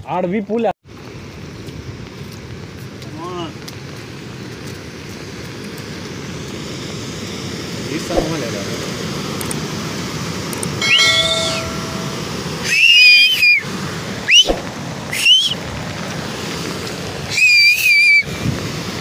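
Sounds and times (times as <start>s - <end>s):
water pouring over spillway: 12.2s - 19.0s
loud two-finger whistling: 12.6s - 13.6s, 14.3s - 15.6s, 17.3s - 18.2s.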